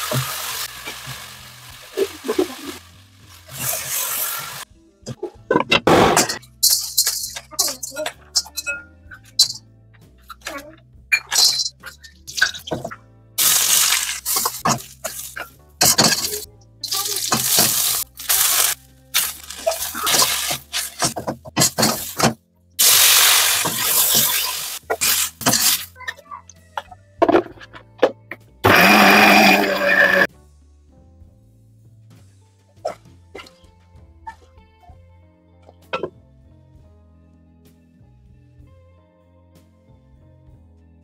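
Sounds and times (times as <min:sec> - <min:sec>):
hissing sizzle bursts: 0:00.0 - 0:04.7, 0:13.4 - 0:21.1, 0:22.8 - 0:26.0
utensils clicking and clinking: 0:06.2 - 0:09.6, 0:11.2 - 0:22.3.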